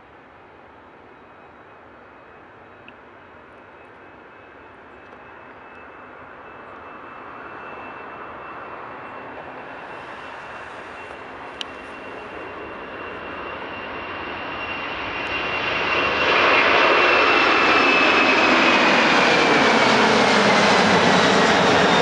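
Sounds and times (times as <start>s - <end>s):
thin steady whine: 0.0s - 16.2s
jet engines roaring: 1.8s - 22.0s.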